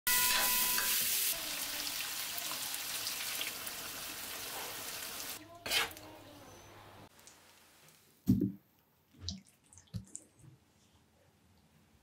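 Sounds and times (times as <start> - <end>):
food sizzling in hot oil: 0.1 - 6.0.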